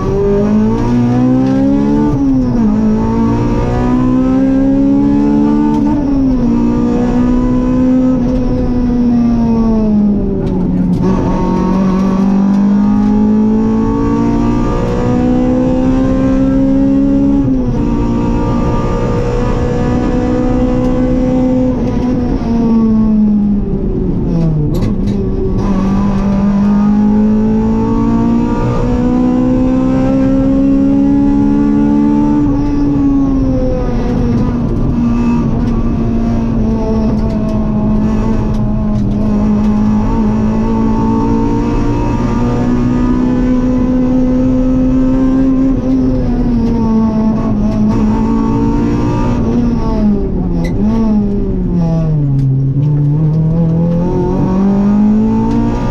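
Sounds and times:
rally car engine revving: 0.0 - 55.9.

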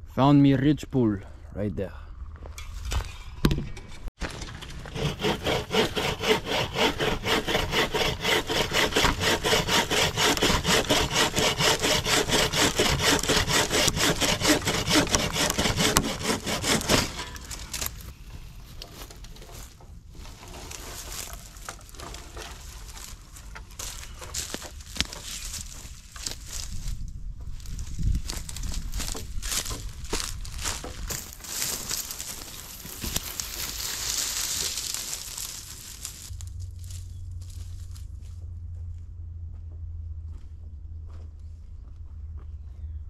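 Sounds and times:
bow saw cutting log: 4.8 - 18.0, 29.0 - 36.3.

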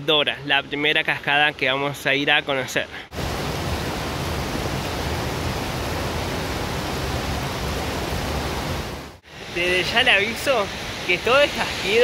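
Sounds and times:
waterfall rushing: 3.1 - 12.0.

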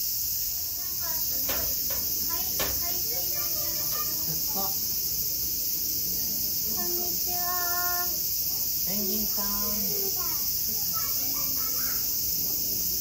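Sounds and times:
insects chorus: 0.0 - 13.0
voice: 0.8 - 4.8, 6.7 - 8.2, 8.9 - 12.1
child calling out: 2.3 - 4.8, 9.4 - 12.2.

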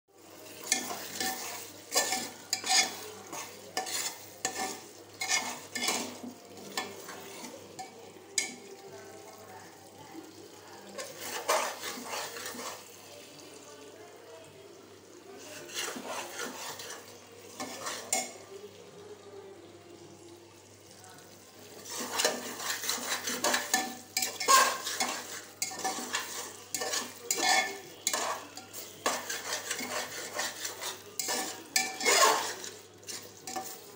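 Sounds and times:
curry sizzling in oil: 0.1 - 33.9
metal spoon scraping pot: 0.6 - 8.5, 11.0 - 12.8, 15.4 - 18.4, 21.8 - 33.9.

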